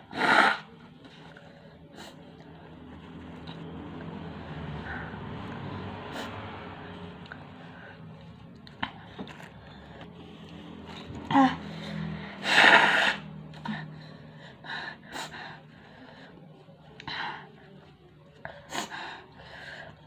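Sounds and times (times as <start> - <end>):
sniffing and sharp breaths: 4.5 - 16.4.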